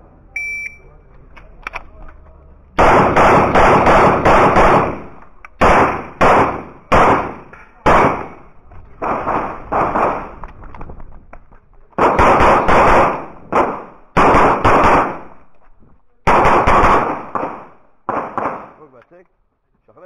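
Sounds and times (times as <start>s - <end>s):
pistol shots: 2.8s - 10.4s, 12.0s - 15.4s, 16.2s - 18.8s.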